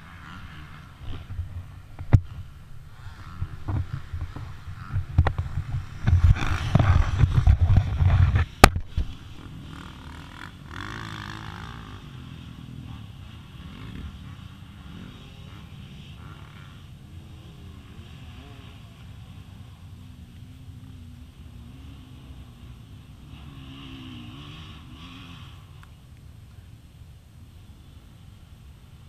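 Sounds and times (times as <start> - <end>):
camera handling rumbling and scraping: 3.6 - 9.1.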